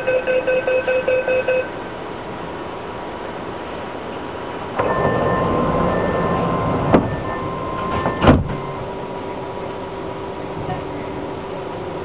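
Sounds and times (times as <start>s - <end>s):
electronic warning tone: 0.0s - 1.8s
metro car hum: 0.0s - 12.0s
sliding doors thudding shut: 4.8s - 8.9s.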